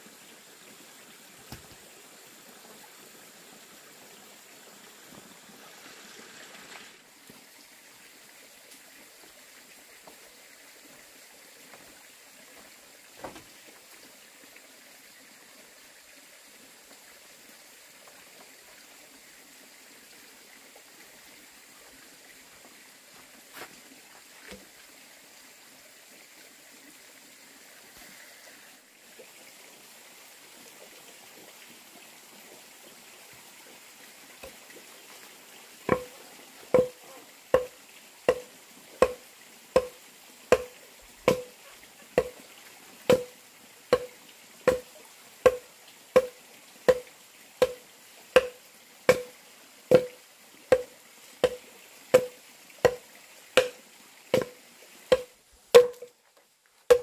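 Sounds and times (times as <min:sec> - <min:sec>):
axe chopping wooden log: 0:35.9 - 0:36.2, 0:36.8 - 0:37.0, 0:37.6 - 0:39.2, 0:39.8 - 0:41.6, 0:42.2 - 0:42.4, 0:43.1 - 0:44.1, 0:44.7 - 0:45.6, 0:46.2 - 0:47.0, 0:48.4 - 0:49.3, 0:49.9 - 0:51.6, 0:52.2 - 0:53.0, 0:53.6 - 0:53.8, 0:54.4 - 0:56.1.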